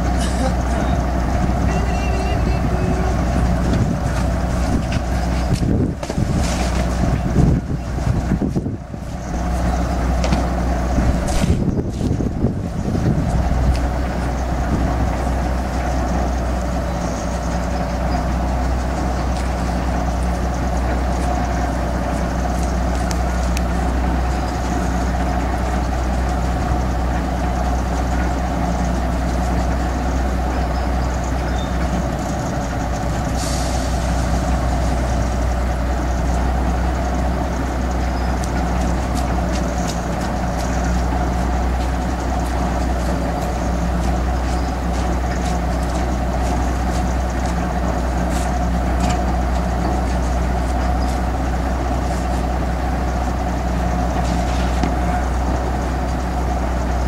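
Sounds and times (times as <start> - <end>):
crane engine low hum: 0.0 - 57.0.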